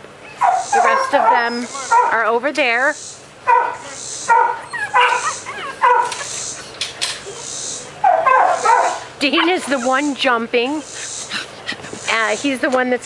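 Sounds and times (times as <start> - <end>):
puppies yipping: 0.2 - 2.4, 3.5 - 12.2
puppies barking: 0.2 - 12.2.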